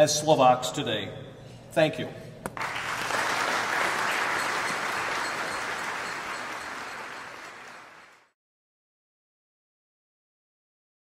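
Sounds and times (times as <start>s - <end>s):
audience applauding: 2.6s - 8.4s.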